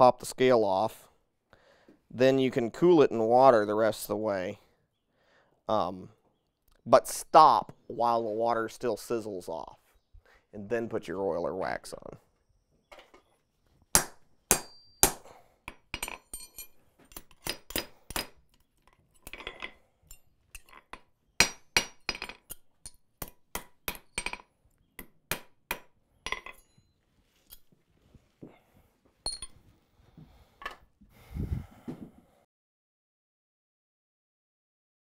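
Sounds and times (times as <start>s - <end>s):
hammer striking steel on anvil: 14.0s - 18.3s.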